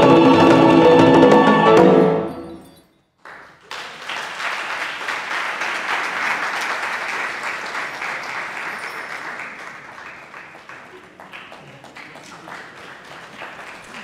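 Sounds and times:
chamber ensemble strings and voices: 0:00.0 - 0:02.6
audience applauding: 0:03.2 - 0:14.0.

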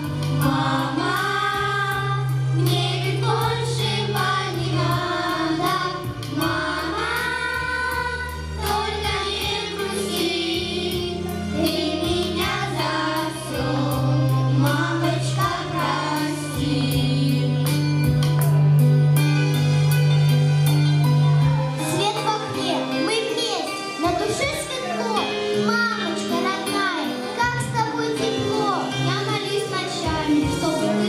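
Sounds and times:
children and adults singing: 0:00.0 - 0:17.7, 0:29.2 - 0:31.0
backing track with bass and beat: 0:00.0 - 0:22.2.

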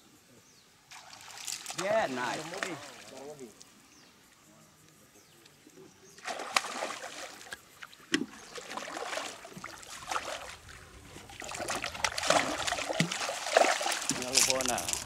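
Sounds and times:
fish splashing at water surface: 0:06.2 - 0:07.6, 0:08.2 - 0:14.8.

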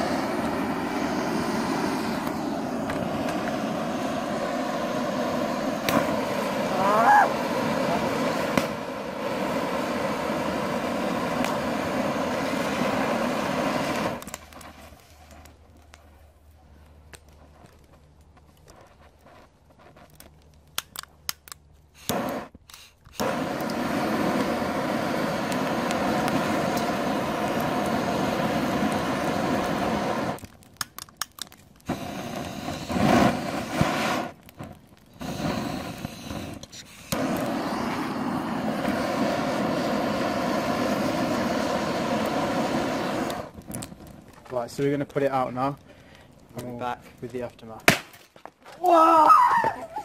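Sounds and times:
gas torch hissing: 0:00.0 - 0:15.3, 0:21.9 - 0:30.5, 0:31.8 - 0:43.8
sharp pops: 0:05.8 - 0:06.4, 0:08.3 - 0:09.0, 0:13.8 - 0:16.1, 0:20.1 - 0:24.6, 0:30.2 - 0:39.1, 0:47.7 - 0:48.3
circuit board crackling on a grill: 0:43.4 - 0:47.8.

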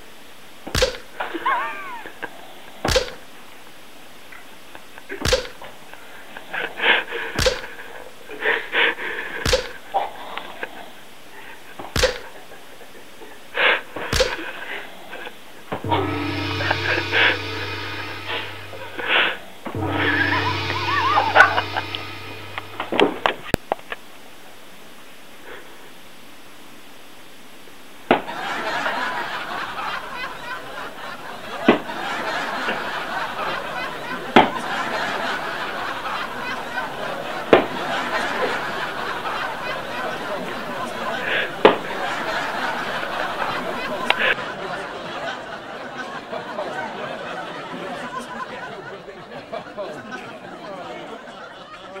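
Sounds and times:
people giggling: 0:01.2 - 0:02.3, 0:28.2 - 0:52.0
smacks on bare skin: 0:02.9 - 0:03.2, 0:05.3 - 0:05.6, 0:09.5 - 0:09.8, 0:12.0 - 0:12.2, 0:14.2 - 0:14.4
sharp knocks: 0:05.3 - 0:05.5, 0:07.4 - 0:07.6.

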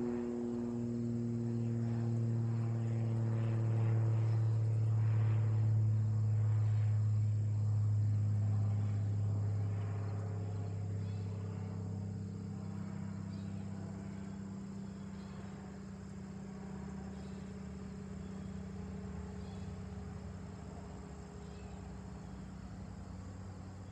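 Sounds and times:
distant twin-engine aircraft drone: 0:00.0 - 0:23.9
insects buzzing: 0:00.0 - 0:23.9.

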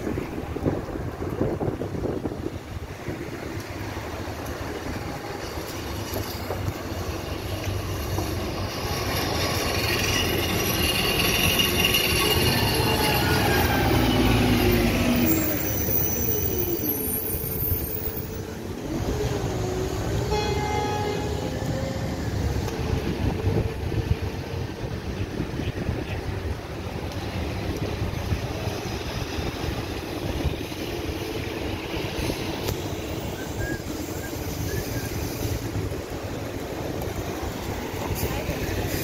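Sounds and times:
tram passing: 0:00.0 - 0:39.0
truck passing: 0:00.0 - 0:39.0
high whining tones: 0:08.2 - 0:24.8.

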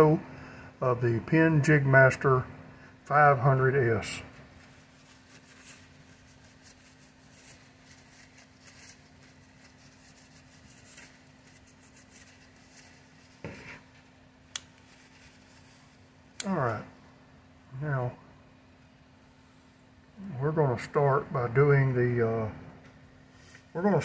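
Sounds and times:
steady low hum: 0:00.0 - 0:24.0
paper towel rustling on metal: 0:03.6 - 0:17.0.

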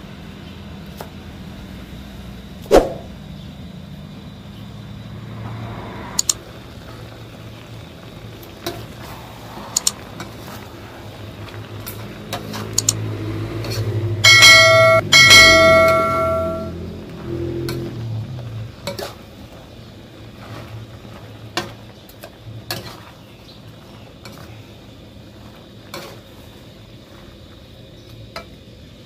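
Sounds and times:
sharp clicks: 0:06.2 - 0:06.4, 0:09.8 - 0:10.0, 0:12.7 - 0:13.0
vegetables tossed in a wok: 0:06.3 - 0:14.2, 0:16.7 - 0:28.7
bright bell ringing: 0:14.2 - 0:16.8.

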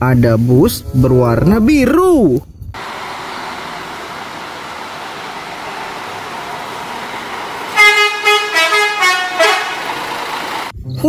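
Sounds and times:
steady rushing noise: 0:02.8 - 0:10.7
musical bus horn notes: 0:04.0 - 0:10.7.

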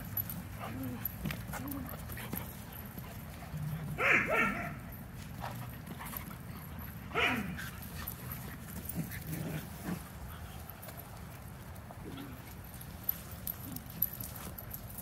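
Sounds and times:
puppy high cry: 0:04.0 - 0:04.8, 0:07.1 - 0:07.6.

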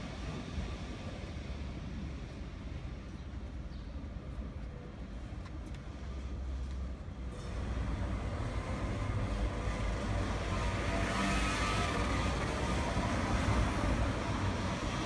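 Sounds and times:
traffic rumble: 0:00.0 - 0:15.0
car passing: 0:07.4 - 0:15.0
motor scooter passing: 0:08.6 - 0:15.0.

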